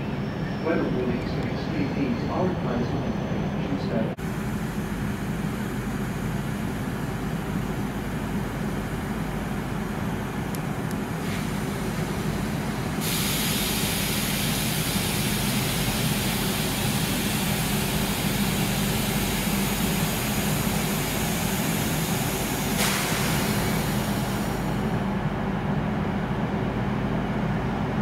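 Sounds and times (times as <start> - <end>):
train equipment hum: 0.0 - 28.0
hiss: 11.2 - 24.9.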